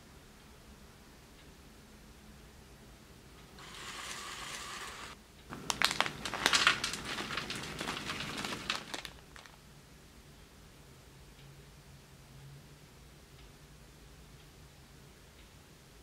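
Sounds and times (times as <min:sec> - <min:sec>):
plastic pouch crinkling: 0:03.6 - 0:09.6.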